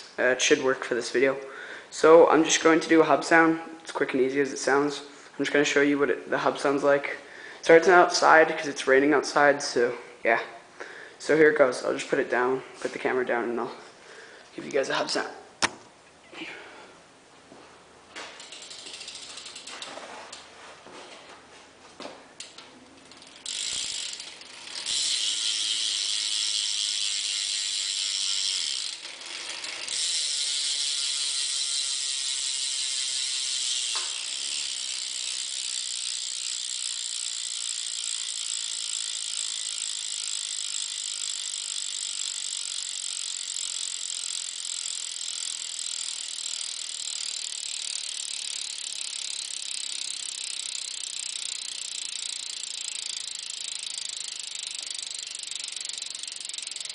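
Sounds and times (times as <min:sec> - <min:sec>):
bike hub freewheel buzzing: 0:18.1 - 0:20.5, 0:22.3 - 0:56.9.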